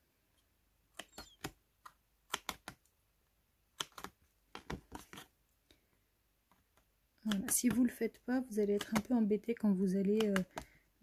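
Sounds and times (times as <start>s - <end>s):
scissors snipping paper: 0.9s - 2.8s, 3.7s - 5.3s, 7.2s - 8.0s, 8.6s - 9.3s, 10.0s - 10.7s.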